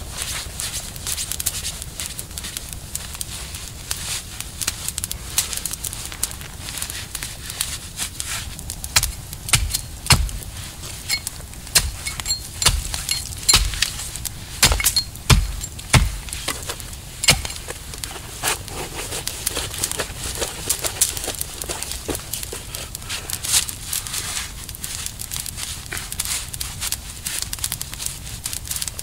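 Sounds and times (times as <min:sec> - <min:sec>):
dry wood cracking and knocking: 0:04.6 - 0:29.0
heavy thumps: 0:09.0 - 0:18.1.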